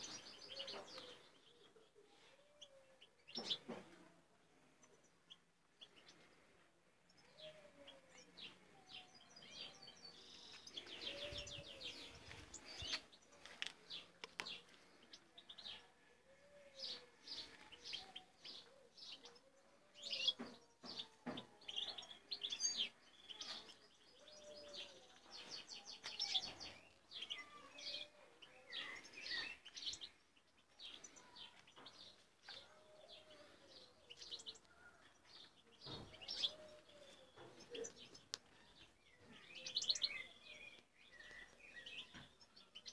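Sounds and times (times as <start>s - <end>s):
goldfinches chirping and twittering: 21.7s - 42.9s.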